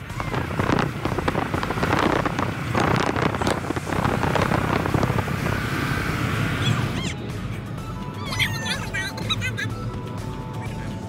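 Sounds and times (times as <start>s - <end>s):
wind rushing over microphone: 0.0s - 7.0s
car road noise: 0.0s - 11.0s.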